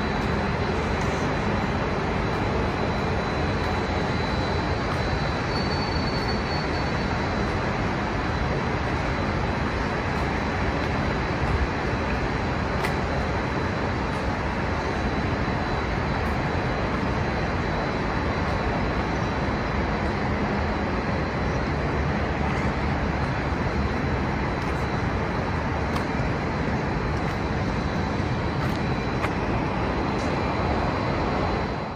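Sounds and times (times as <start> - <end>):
distant road traffic hum: 0.0 - 31.9.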